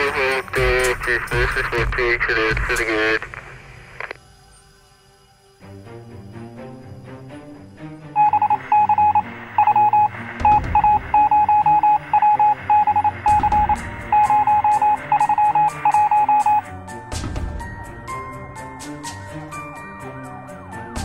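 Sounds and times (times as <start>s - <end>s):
drums: 0.0s - 3.7s, 8.2s - 19.8s
electronic beep tones: 8.2s - 16.6s.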